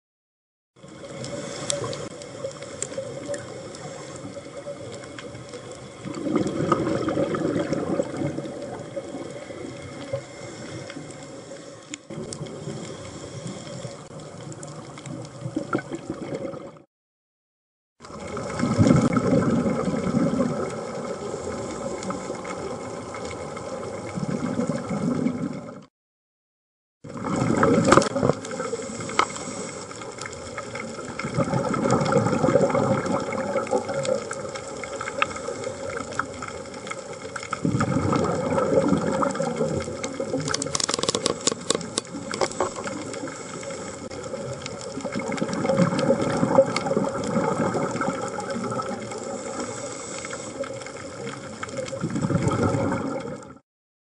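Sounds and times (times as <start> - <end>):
underwater regulator bubbles: 0.8 - 16.8, 18.0 - 25.9, 27.0 - 53.6
steady hiss: 1.0 - 5.9, 9.4 - 14.2, 28.5 - 30.4, 41.1 - 44.1, 49.1 - 50.9
quick clicks: 40.4 - 42.5.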